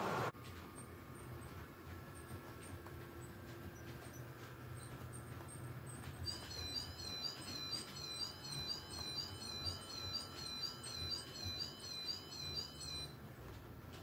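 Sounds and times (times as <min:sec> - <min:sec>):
wheels clicking on track: 0:00.0 - 0:14.0
model train squeaking: 0:02.2 - 0:13.1.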